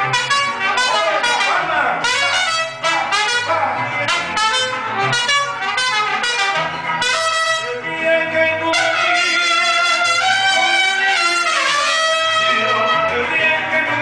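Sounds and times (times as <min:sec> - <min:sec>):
low bass line: 0:00.0 - 0:11.5
strummed guitars: 0:00.0 - 0:14.0
trumpet melody: 0:00.0 - 0:14.0.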